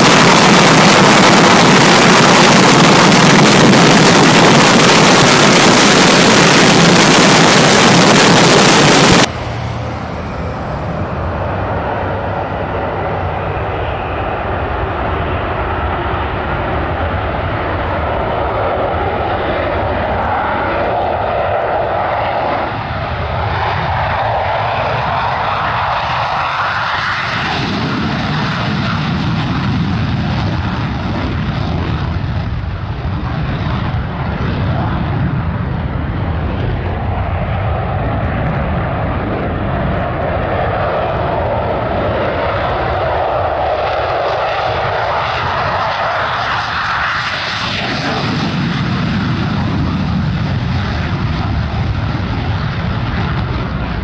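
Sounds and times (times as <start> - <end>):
fighter jets taking off: 0.0 - 54.0.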